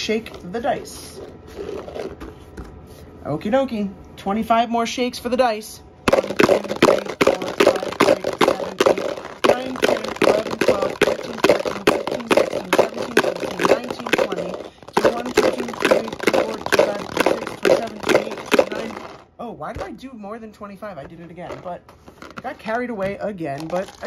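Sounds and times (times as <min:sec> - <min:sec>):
dice rattling in plastic container: 0:00.0 - 0:02.2, 0:06.1 - 0:19.9, 0:21.3 - 0:24.0.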